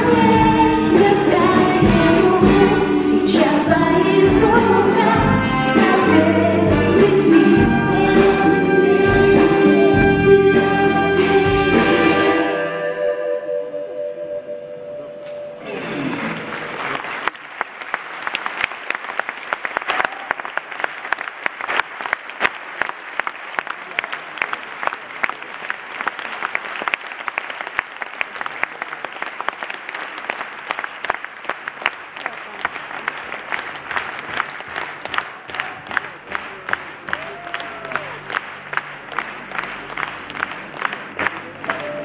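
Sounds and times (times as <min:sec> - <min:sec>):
audience applauding: 0:15.6 - 0:42.0.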